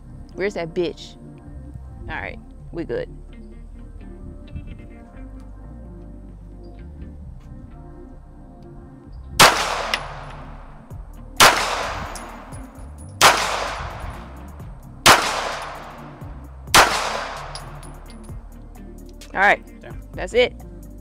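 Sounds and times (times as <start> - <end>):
pistol shots: 9.4 - 10.7, 11.4 - 18.0.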